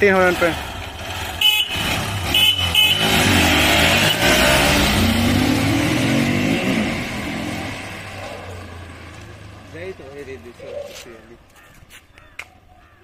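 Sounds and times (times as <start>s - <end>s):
motorcycles accelerating hard: 0.0s - 10.7s
motorcycle horn honks: 1.4s - 4.4s.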